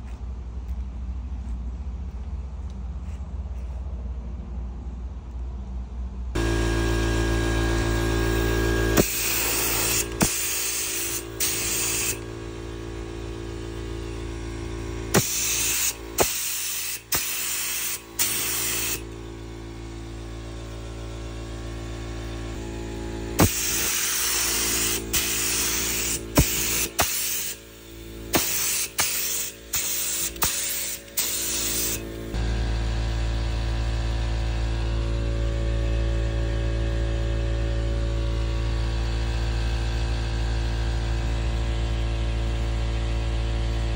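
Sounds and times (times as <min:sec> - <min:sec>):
steady hum: 0:00.0 - 0:39.5
spray gun hissing: 0:09.0 - 0:12.2, 0:15.1 - 0:19.1, 0:23.4 - 0:32.4
spray gun trigger click: 0:24.6 - 0:27.6.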